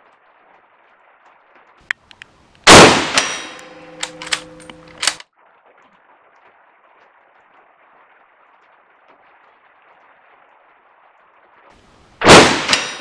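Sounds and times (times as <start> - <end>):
rifle shot: 2.7 - 5.2, 12.2 - 13.0
rifle bolt clicks: 3.2 - 5.2.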